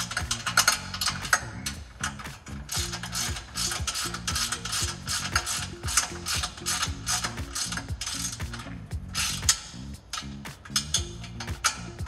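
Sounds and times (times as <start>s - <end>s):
hand ratchet pawl clicking: 0.0s - 12.0s.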